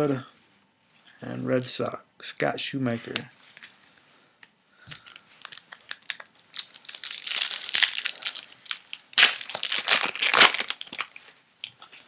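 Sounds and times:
wrapper crinkling: 4.9s - 11.4s.

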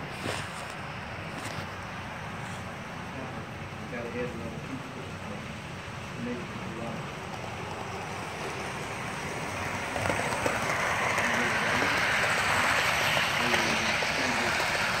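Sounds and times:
model train rolling: 3.6s - 15.0s
wheels clicking on track: 6.2s - 15.0s.

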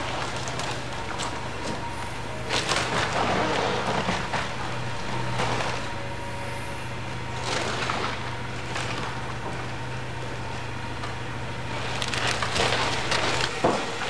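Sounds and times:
diesel engine running: 0.0s - 14.0s
timber cracking and splintering: 11.7s - 14.0s.

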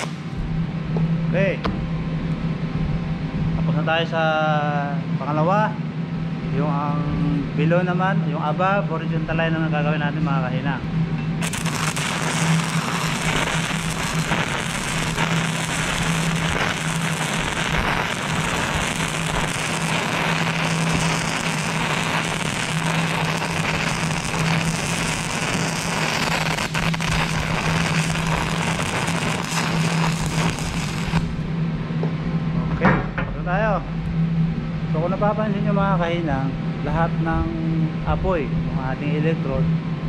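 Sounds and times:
welding arc crackling: 0.0s - 0.3s, 11.4s - 31.5s
low hum: 0.0s - 40.0s.

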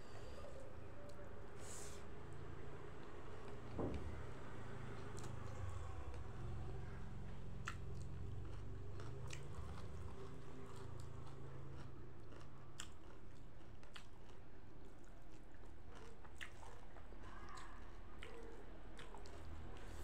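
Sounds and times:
person chewing food: 7.2s - 20.0s.

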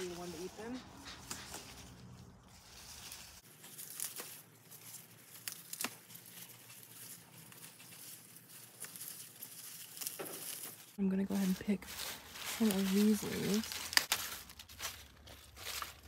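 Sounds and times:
lettuce leaves rustling and tearing: 0.0s - 16.0s
lettuce snapping: 5.2s - 6.1s.

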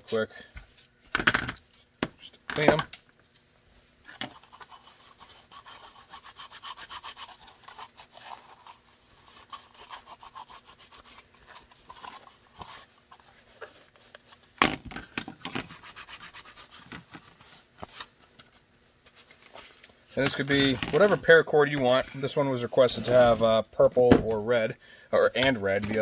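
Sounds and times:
towel rubbing on plastic: 4.3s - 14.4s, 15.5s - 17.8s.

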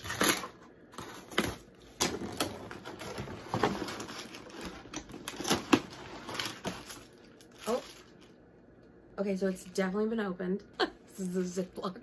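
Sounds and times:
cardboard and plastic rustling: 0.0s - 8.4s.

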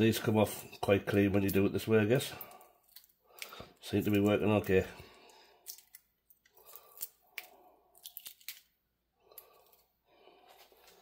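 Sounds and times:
eggshell crackling while peeled: 2.4s - 9.9s.

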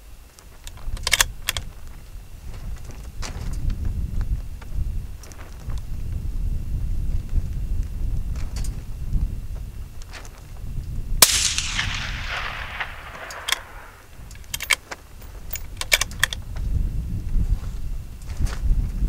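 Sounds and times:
rifle bolt metallic clicks: 1.0s - 1.6s, 11.2s - 14.8s, 15.5s - 16.4s
rifle shot with echo: 11.2s - 14.4s.

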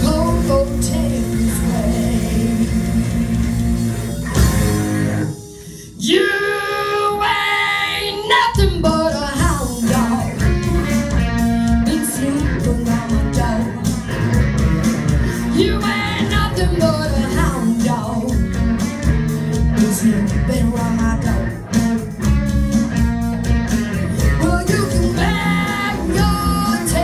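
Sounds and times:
person singing: 0.0s - 3.9s, 5.4s - 11.0s, 11.6s - 14.1s, 15.3s - 18.6s, 19.6s - 22.0s, 24.2s - 27.0s
rock and roll band playing: 0.0s - 27.0s.

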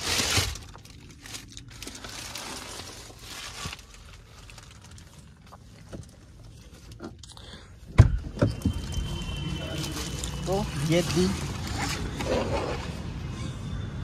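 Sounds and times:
plastic wrap crinkling: 0.0s - 7.0s, 8.7s - 12.7s.

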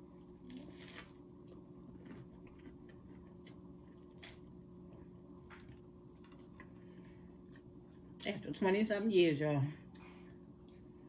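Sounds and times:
chewing bread: 0.0s - 8.0s
low steady hum: 0.0s - 11.0s.

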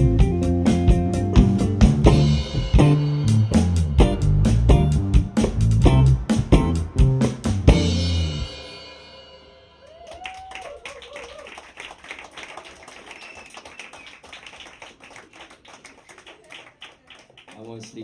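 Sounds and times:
band's final chord: 0.0s - 9.4s
person cheering: 9.8s - 11.7s
small audience clapping: 9.8s - 18.0s.

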